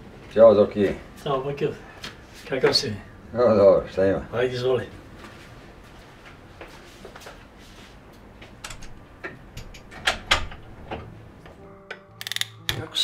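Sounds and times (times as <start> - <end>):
electric lighter clicking: 12.2 - 12.6.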